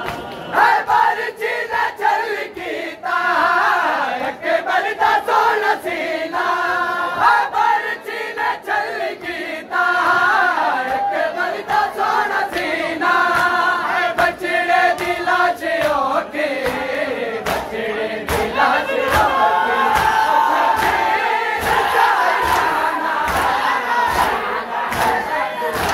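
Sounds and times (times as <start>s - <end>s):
men chanting in unison: 0.5s - 25.9s
chest-beating slaps: 15.8s - 19.3s, 20.0s - 25.9s.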